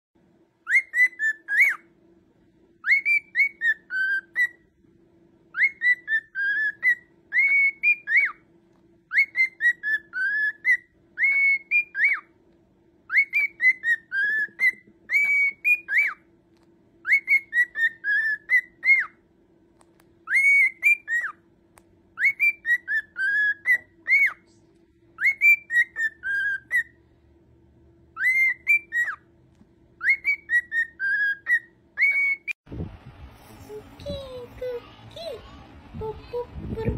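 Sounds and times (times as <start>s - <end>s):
cockatiel whistling a tune: 0.6s - 1.9s, 2.8s - 4.6s, 5.5s - 8.4s, 9.1s - 12.3s, 13.1s - 16.3s, 17.0s - 19.2s, 20.2s - 21.4s, 22.2s - 24.4s, 25.2s - 27.0s, 28.1s - 29.2s, 30.0s - 32.6s.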